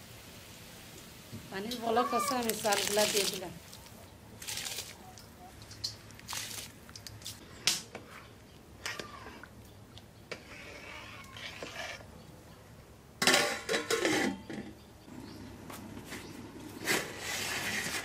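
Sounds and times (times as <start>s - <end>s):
utensils clinking and scraping pot: 13.2s - 14.8s.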